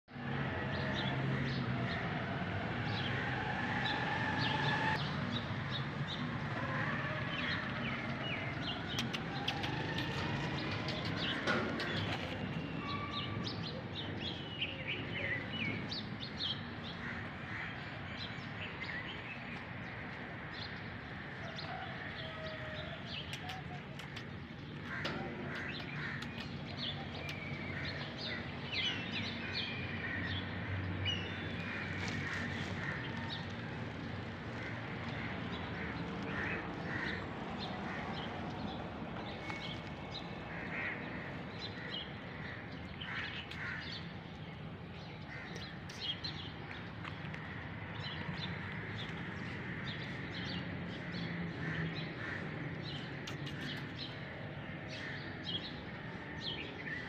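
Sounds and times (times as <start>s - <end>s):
small birds chirping: 51.7s - 55.8s.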